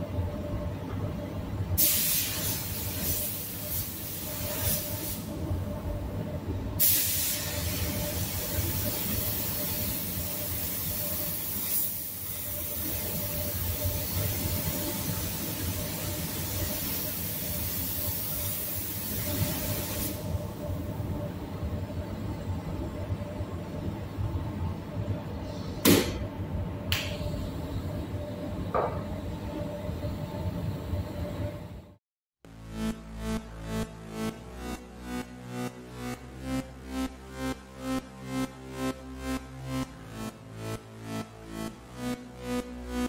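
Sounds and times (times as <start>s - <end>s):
spray gun hissing: 1.8s - 5.3s, 6.8s - 12.8s, 15.0s - 20.2s.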